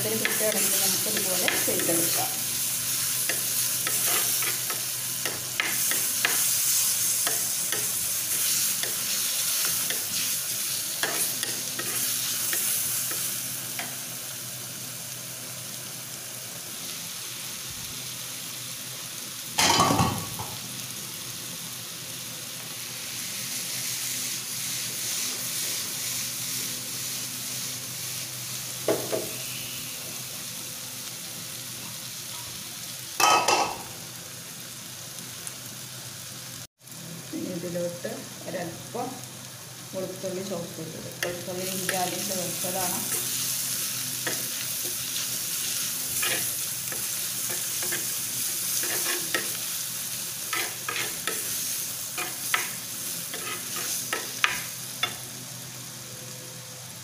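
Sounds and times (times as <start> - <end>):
onions sizzling in hot oil: 0.0 - 57.0
steel spoon scraping pot: 48.8 - 49.5, 50.5 - 51.4, 53.3 - 54.2.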